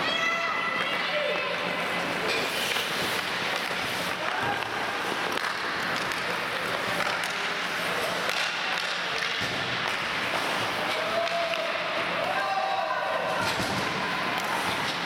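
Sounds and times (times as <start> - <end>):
hockey sticks and puck clicking: 0.7 - 12.4, 13.3 - 15.0
skates hissing on ice: 1.8 - 8.3.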